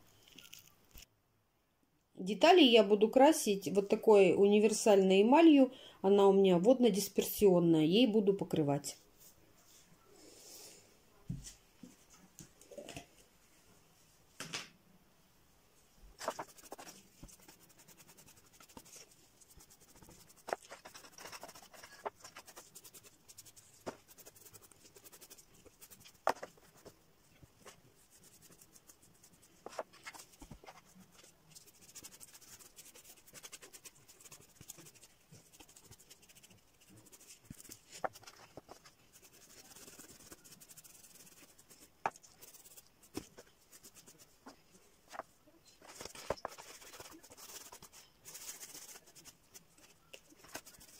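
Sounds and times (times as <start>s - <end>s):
paintbrush brushing on cardboard: 16.2s - 45.2s, 45.8s - 50.9s.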